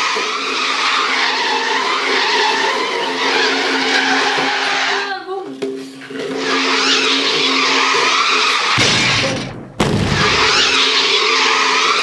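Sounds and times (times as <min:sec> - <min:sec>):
plastic scraping on tiled floor: 0:00.0 - 0:08.8.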